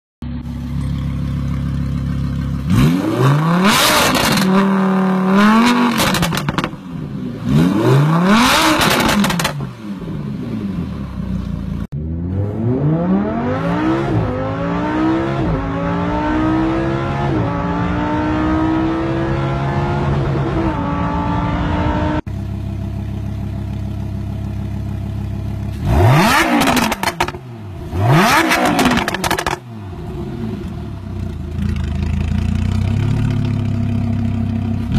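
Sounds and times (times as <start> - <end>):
sports car engine idling and revving: 0.2 - 34.9
car engine accelerating through gears: 2.7 - 6.8, 7.4 - 9.9, 12.0 - 22.2, 25.7 - 30.9.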